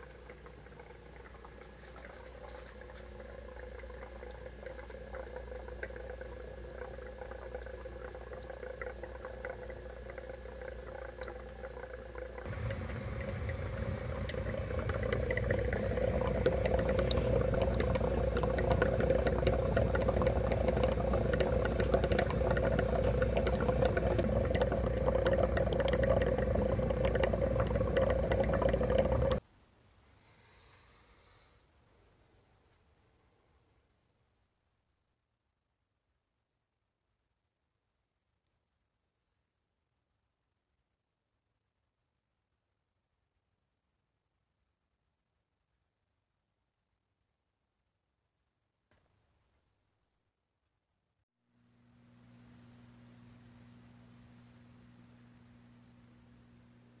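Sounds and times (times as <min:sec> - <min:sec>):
air bubbling through water: 0:12.4 - 0:29.4
air pump humming: 0:12.5 - 0:29.4.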